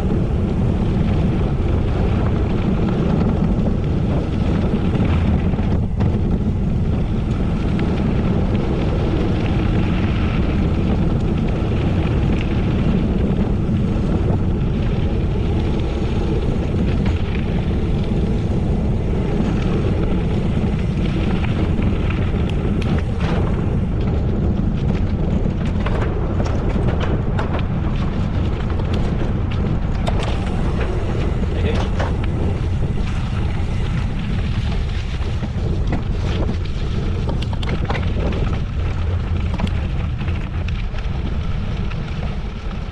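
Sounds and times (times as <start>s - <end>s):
sharp crackles and ticks: 0.0s - 42.9s
wind rumbling on microphone: 0.0s - 42.9s.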